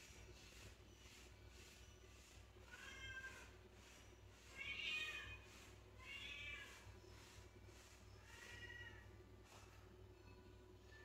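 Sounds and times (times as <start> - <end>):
cat meowing faintly: 8.2 - 9.2.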